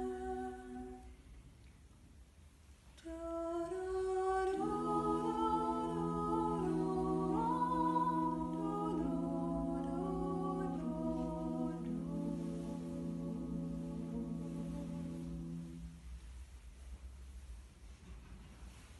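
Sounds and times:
women singing a cappella harmony: 0:00.0 - 0:01.2, 0:03.0 - 0:16.0.

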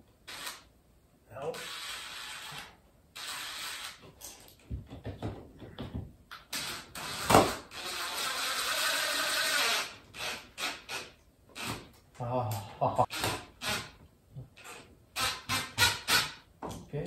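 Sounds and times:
cordless drill driving screw: 0:00.3 - 0:00.6, 0:01.6 - 0:04.0, 0:06.5 - 0:11.8.

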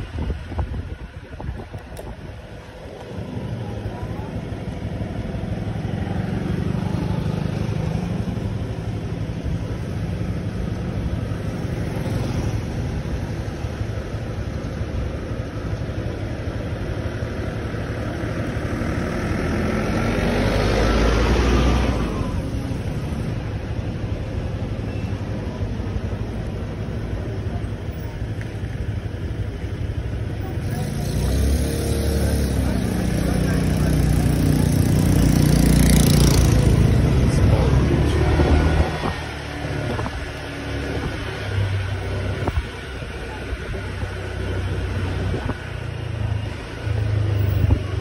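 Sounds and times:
engine and traffic rumble: 0:00.0 - 0:48.0
vehicle passing close by: 0:30.6 - 0:41.6.

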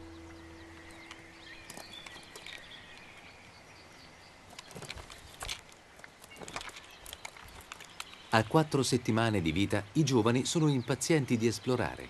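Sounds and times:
small clicks and scratches: 0:04.5 - 0:08.3.

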